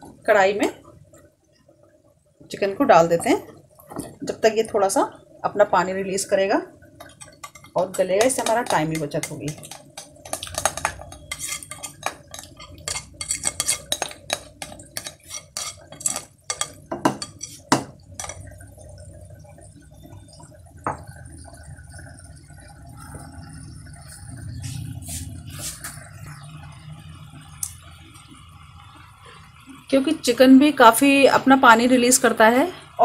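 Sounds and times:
bowl clinking and scraping on pan: 7.0 - 18.6.

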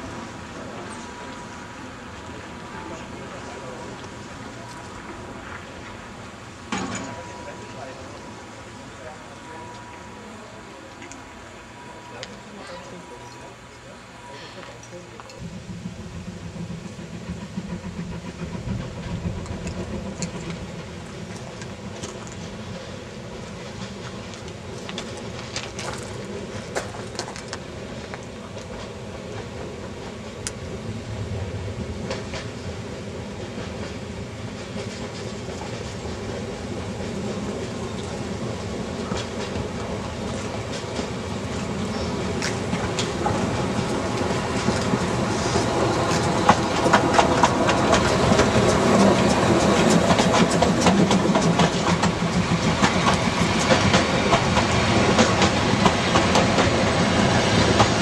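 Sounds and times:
steam train rumble: 0.0 - 58.0
train wheels clattering over rail joints: 15.2 - 30.6, 37.1 - 58.0.

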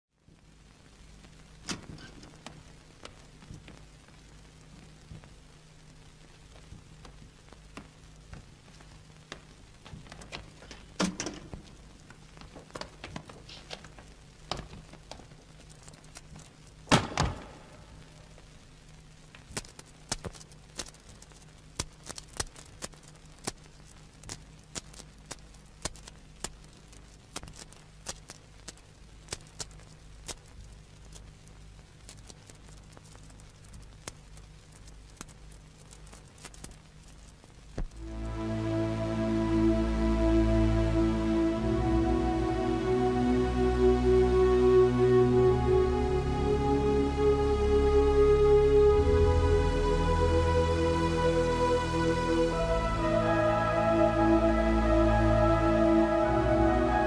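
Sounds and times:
steady low hum: 30.4 - 57.0.

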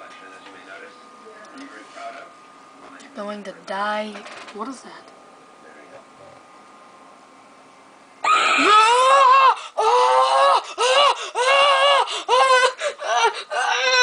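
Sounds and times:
person screaming and shrieking: 8.2 - 14.0.

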